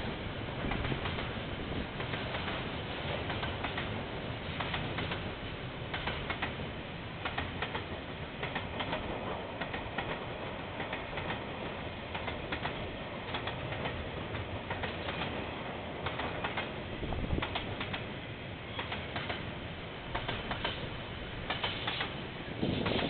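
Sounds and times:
freight train wagons rumbling: 0.0 - 23.0
wheels clicking on track: 5.9 - 6.6, 7.2 - 10.2, 12.1 - 15.4, 16.0 - 18.1, 18.7 - 19.5, 20.1 - 23.0.

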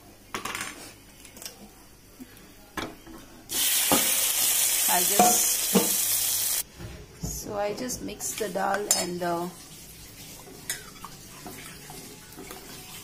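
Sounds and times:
loud sizzle in pan: 3.5 - 6.6.

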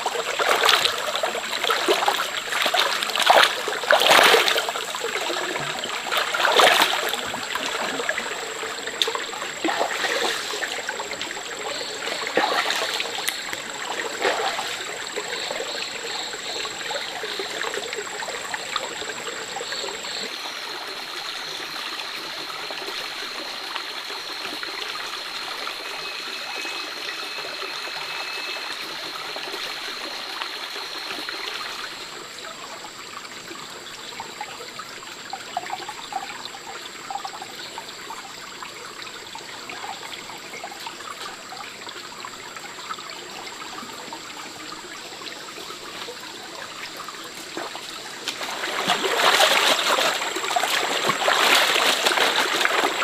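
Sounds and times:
stream running over rocks: 0.0 - 53.0
hands washing clothes splashing: 0.4 - 8.3, 9.0 - 11.2, 11.9 - 14.9, 47.4 - 53.0.

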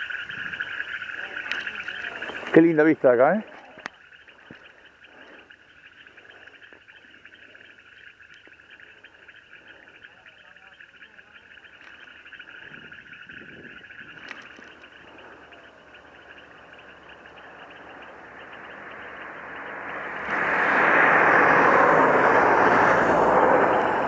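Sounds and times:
frogs croaking: 0.0 - 24.0
loud rushing noise: 18.8 - 24.0.

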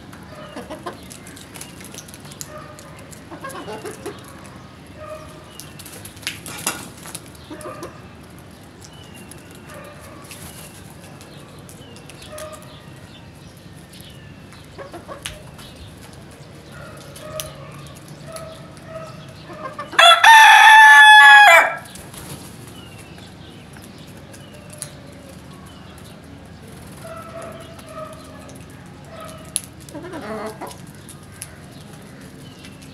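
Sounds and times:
rooster crowing: 19.9 - 21.9.

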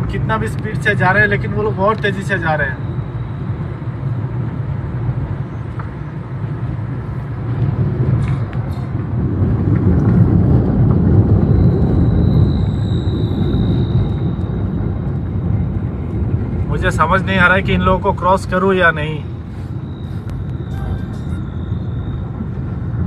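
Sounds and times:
vehicle road rumble: 0.0 - 23.0
faint high whine: 0.1 - 6.2, 11.2 - 23.0.

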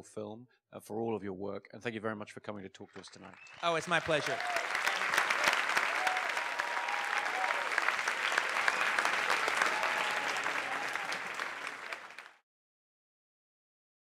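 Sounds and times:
audience applauding: 3.0 - 12.4.

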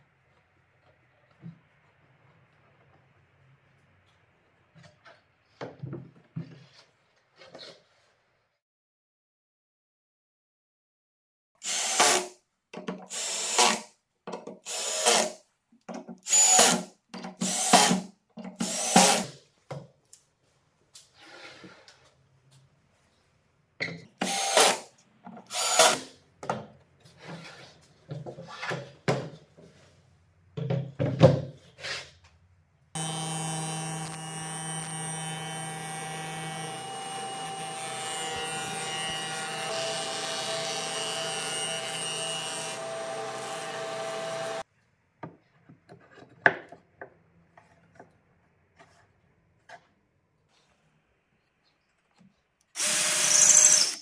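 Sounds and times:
power tool motor running: 33.0 - 44.6, 52.8 - 54.0.

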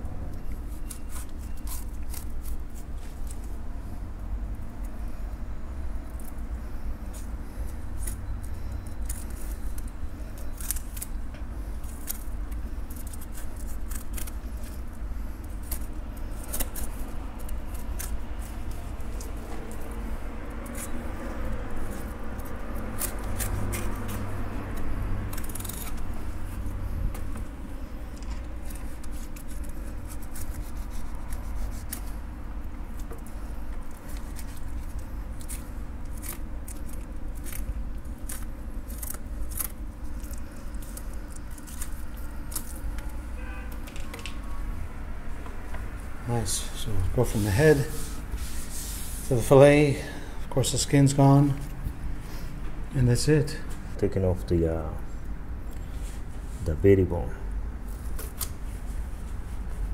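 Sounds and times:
knife scraping fish bones: 11.8 - 19.9, 21.7 - 26.6, 33.0 - 42.9.

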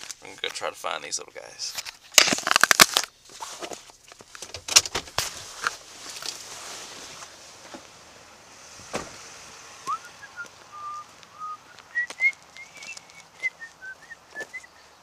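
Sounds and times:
footsteps on gravel and leaves: 9.9 - 14.7
person whistling: 9.9 - 14.7.

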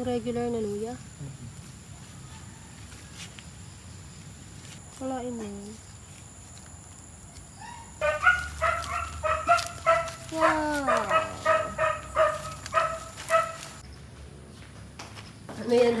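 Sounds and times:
animal calling: 7.6 - 13.8.

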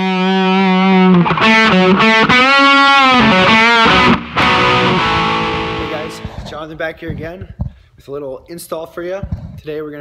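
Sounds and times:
distorted electric guitar: 0.0 - 6.8.

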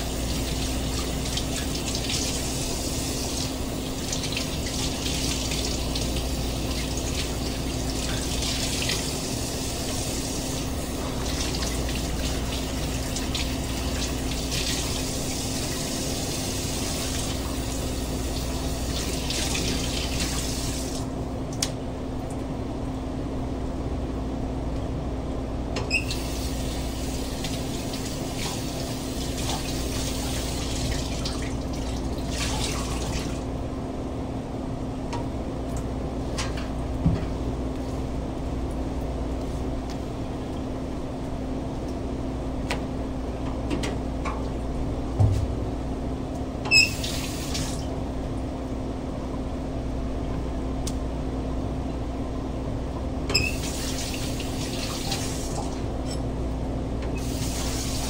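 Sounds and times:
tap water running into sink: 0.0 - 21.1, 46.7 - 47.8, 53.4 - 55.8, 57.2 - 58.0.

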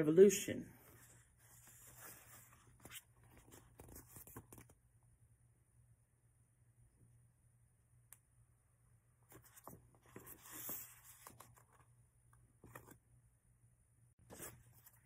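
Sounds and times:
book pages rustling: 0.8 - 4.8, 9.3 - 11.9, 12.6 - 13.0, 14.2 - 15.0.

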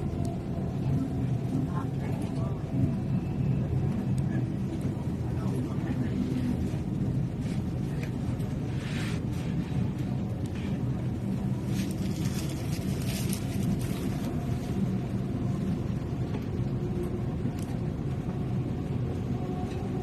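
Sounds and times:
rumble of train wheels and motors: 0.0 - 20.0.

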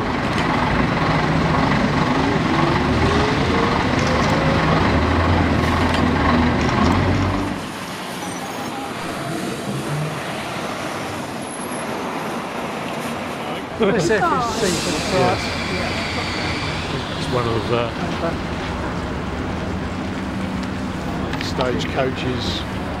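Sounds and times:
diesel bus engine running: 0.0 - 10.8, 13.6 - 23.0
rising engine whine: 0.0 - 11.4
bus station traffic noise: 0.0 - 23.0.

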